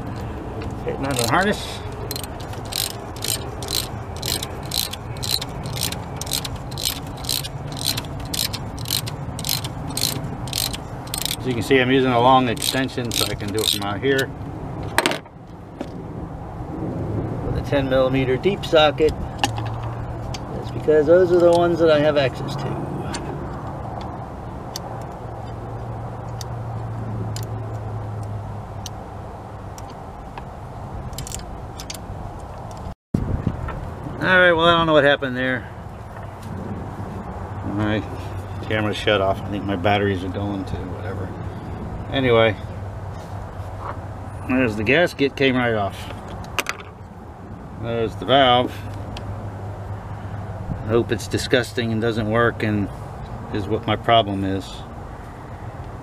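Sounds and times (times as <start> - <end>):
ratchet clicking: 1.1 - 11.5, 12.4 - 14.3, 31.1 - 32.0.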